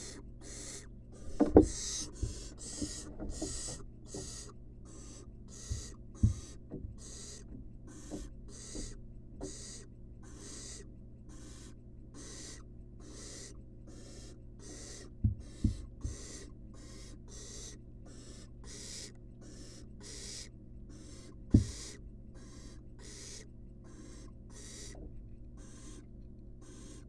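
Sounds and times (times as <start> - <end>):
owl nestlings hissing: 0.0 - 27.0
dull thumps: 1.3 - 4.4, 5.6 - 9.6, 15.2 - 16.3, 21.5 - 21.8.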